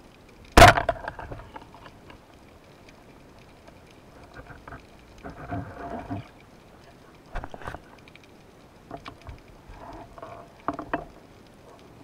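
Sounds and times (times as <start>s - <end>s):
speargun firing crack: 0.6s - 0.9s.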